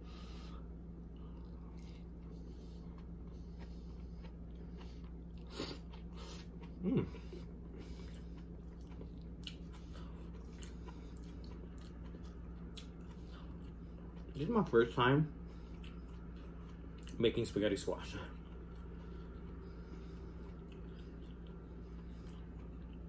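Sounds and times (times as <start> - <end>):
wet chewing: 1.1 - 14.6, 15.4 - 17.4, 18.2 - 23.0.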